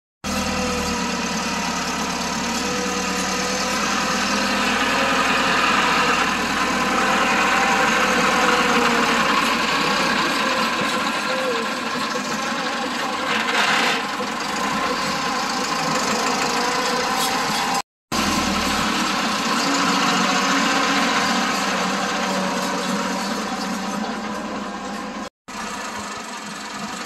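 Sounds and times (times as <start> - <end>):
tractor diesel engine under load: 0.2 - 27.0.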